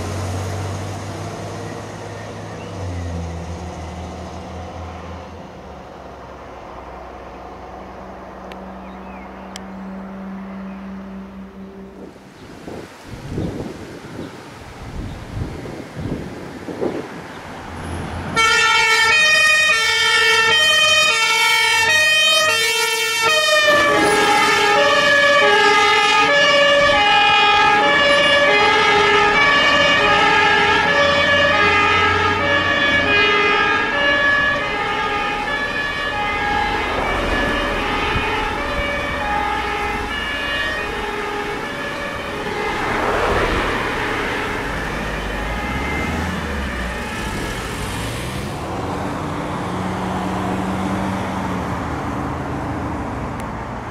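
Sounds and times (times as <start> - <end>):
truck engine rumble: 0.0 - 53.9
two-tone fire engine sirens: 18.2 - 52.9.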